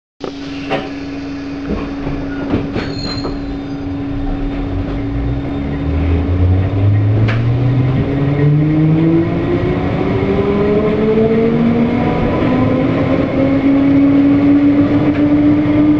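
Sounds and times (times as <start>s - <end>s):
train hum: 0.2s - 15.9s
train clanks: 0.4s - 5.9s
traction motor whine rising: 3.4s - 15.9s.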